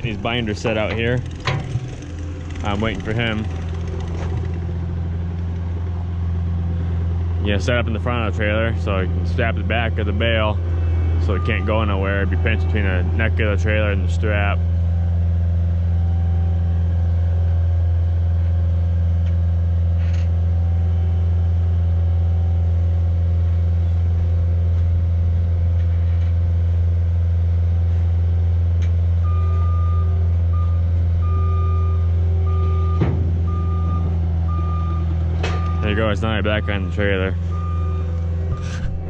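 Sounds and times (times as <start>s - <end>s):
metal clank: 0.0s - 4.9s
diesel engine running under load: 0.0s - 39.0s
backup alarm beeping: 11.2s - 12.0s, 29.2s - 39.0s.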